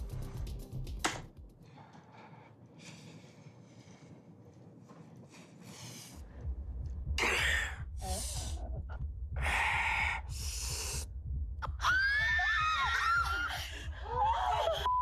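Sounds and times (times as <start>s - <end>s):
person breathing heavily: 1.6s - 4.5s, 5.1s - 11.2s.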